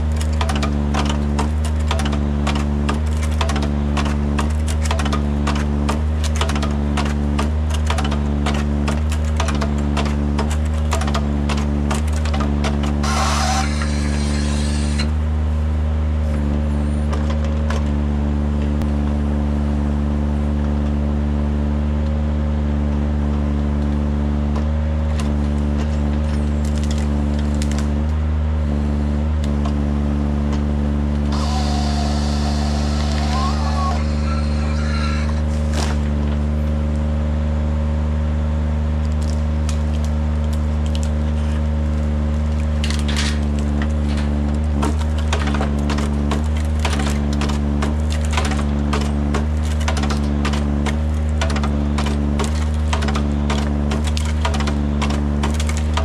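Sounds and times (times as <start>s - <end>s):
forwarder engine running: 0.0s - 56.0s
branches snapping: 24.6s - 28.2s, 31.2s - 37.1s, 39.0s - 56.0s.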